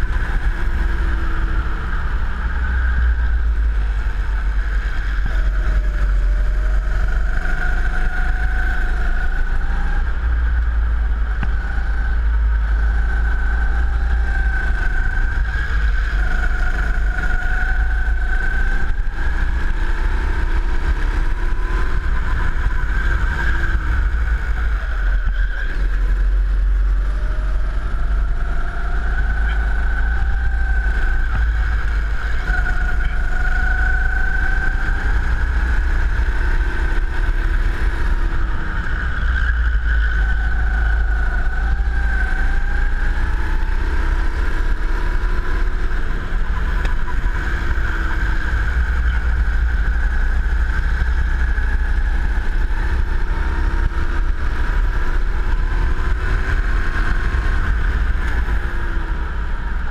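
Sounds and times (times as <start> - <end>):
racing kart engine revving: 0.0 - 59.9.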